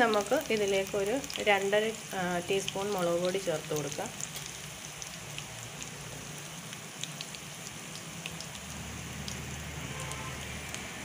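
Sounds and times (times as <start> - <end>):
hot oil sizzling in a frying pan: 0.0 - 11.0
small crackles and pops: 2.5 - 9.5.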